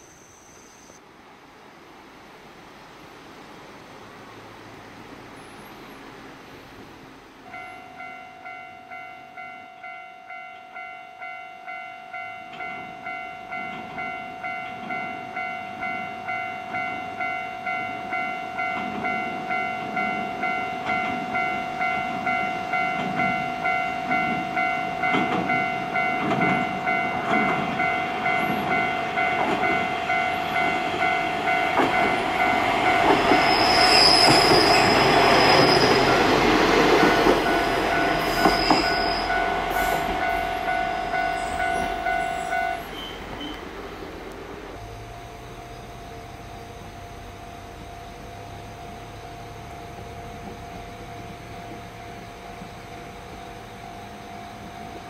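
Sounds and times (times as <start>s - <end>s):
diesel railcar engine: 2.5s - 55.0s
level crossing bell ringing: 7.5s - 34.2s, 34.8s - 43.3s
wheels clattering on rails: 17.7s - 45.1s
high wheel squeal: 26.0s - 44.0s.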